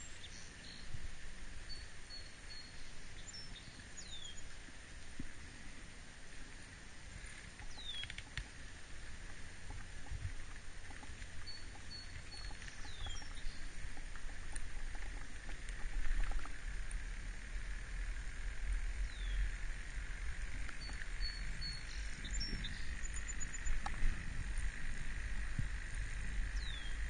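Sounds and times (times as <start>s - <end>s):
low rumble of rolling wheels: 0.0s - 27.0s
wind buffeting microphone: 7.7s - 27.0s.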